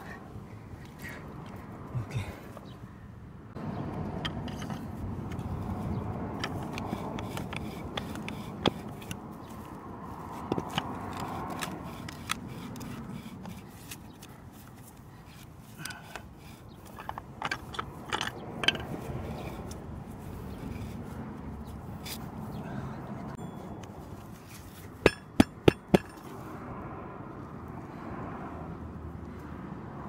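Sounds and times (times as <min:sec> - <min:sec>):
hand auger grinding into wood: 0:06.3 - 0:09.2, 0:10.4 - 0:14.4.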